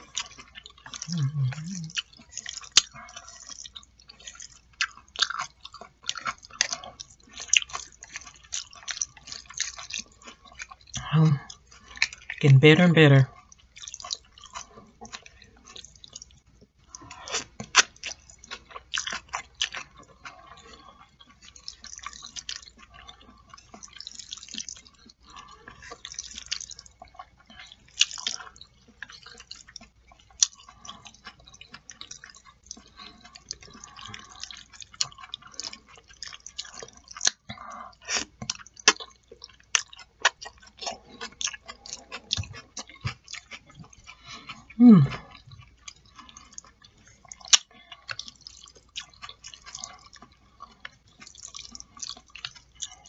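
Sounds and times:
person chewing noodles: 0.0 - 53.0
mouth clicks and smacks: 0.2 - 3.7, 47.3 - 50.3.

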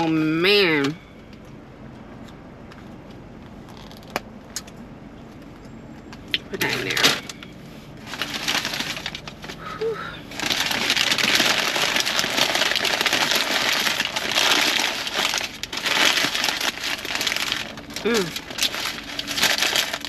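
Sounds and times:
foil and paper bag crinkling: 8.0 - 20.0.

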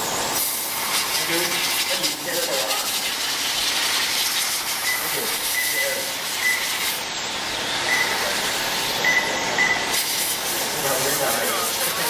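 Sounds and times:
short high beeps: 4.8 - 6.8, 7.8 - 8.3, 9.0 - 10.0.

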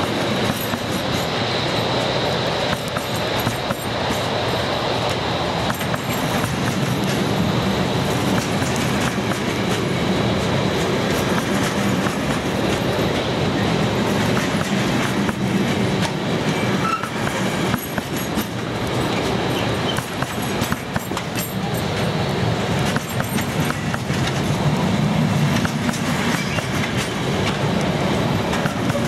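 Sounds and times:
freight train rumbling past: 0.0 - 29.0
wheels clattering over rail joints: 10.8 - 24.6.

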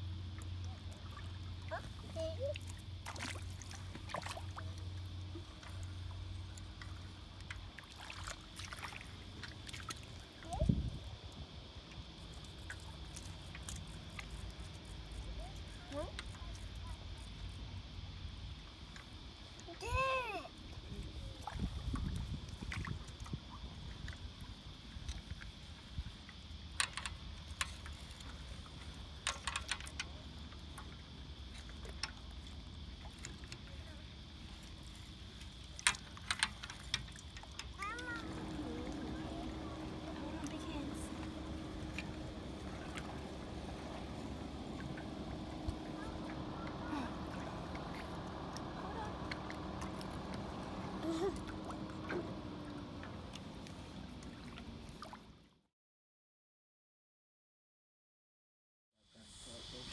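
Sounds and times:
low steady hum: 0.0 - 55.4
winch clicking: 35.8 - 53.8
steady low rumble: 37.9 - 55.2.

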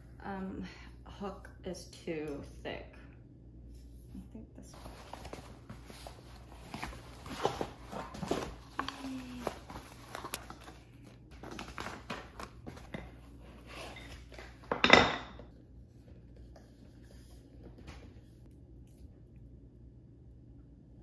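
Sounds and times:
cardboard and foam rustling: 4.7 - 14.6.

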